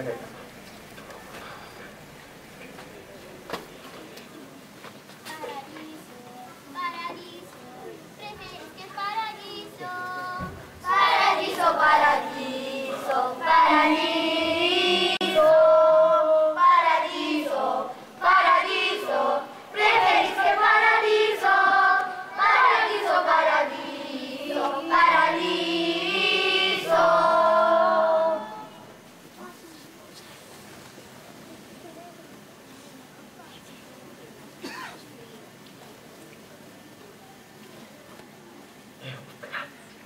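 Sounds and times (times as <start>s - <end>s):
children's choir singing: 9.8s - 29.0s.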